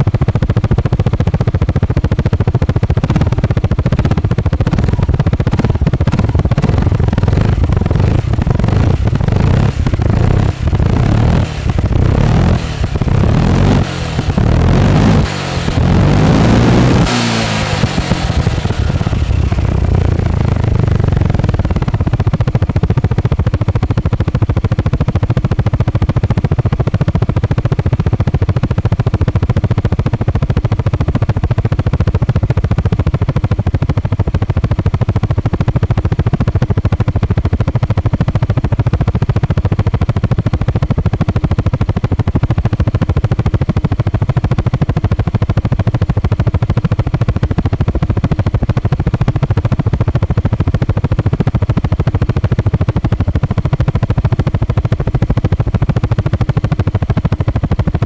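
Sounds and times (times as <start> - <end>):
scooter engine running: 0.0 - 58.0.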